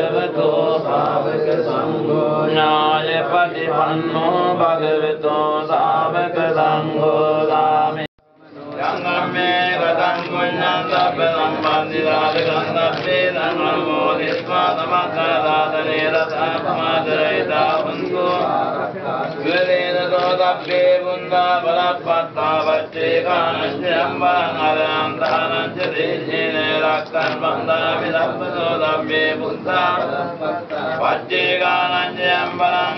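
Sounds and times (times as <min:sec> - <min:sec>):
person chanting verses: 0:00.0 - 0:32.9.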